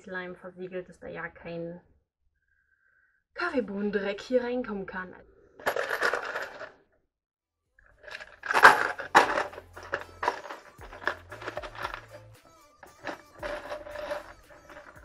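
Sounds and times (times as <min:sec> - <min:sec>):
screws rattling in plastic container: 0:05.7 - 0:06.7, 0:08.0 - 0:15.0.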